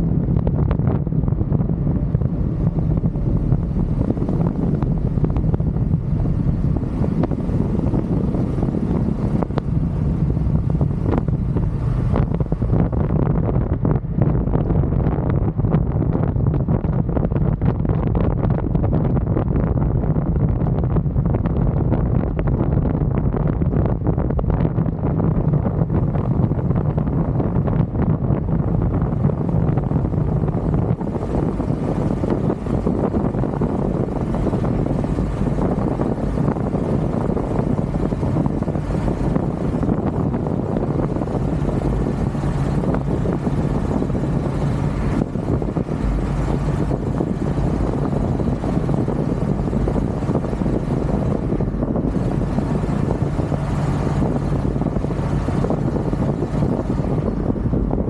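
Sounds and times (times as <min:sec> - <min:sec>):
truck engine pulling uphill: 0:00.0 - 0:58.0
wind rushing over microphone: 0:00.0 - 0:58.0.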